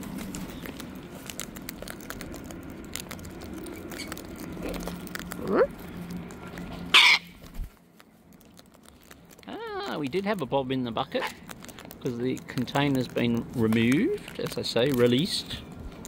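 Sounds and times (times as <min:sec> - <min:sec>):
cockatoos cracking seeds: 0:00.0 - 0:16.0
cockatoo rising call: 0:06.9 - 0:07.4
cockatoo squawk: 0:06.9 - 0:07.4.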